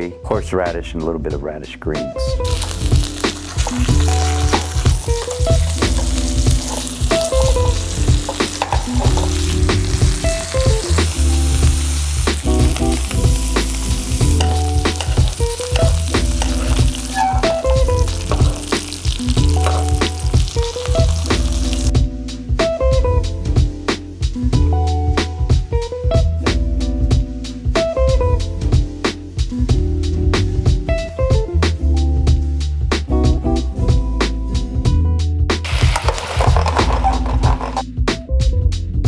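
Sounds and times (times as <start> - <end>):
music with bass line: 0.0 - 39.0
meat sizzling in a pan: 2.4 - 21.9, 35.6 - 37.8
metal spatula scraping: 14.4 - 18.7, 35.7 - 37.8.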